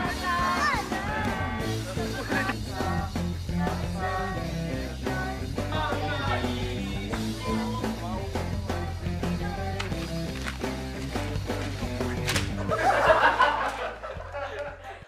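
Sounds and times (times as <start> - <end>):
drum beat: 0.0 - 4.1
rock band music: 0.0 - 14.0
bass line: 0.0 - 14.4.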